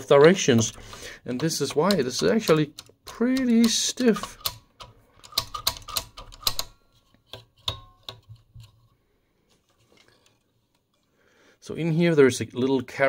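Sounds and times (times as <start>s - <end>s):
metallic clicks and clacks: 0.0s - 8.8s.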